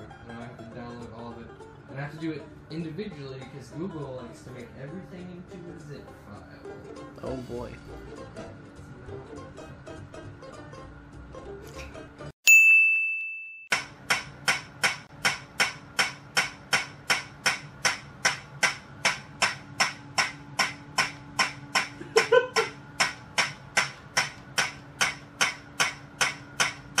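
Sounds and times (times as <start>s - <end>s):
high bell-like ding: 12.4s - 13.8s.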